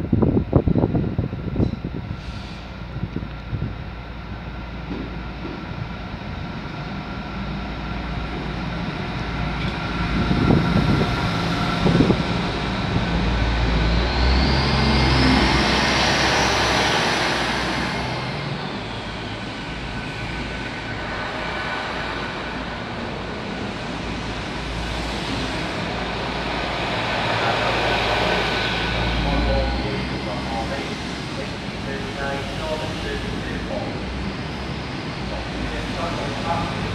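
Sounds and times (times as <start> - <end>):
train passing at speed: 0.0 - 36.9.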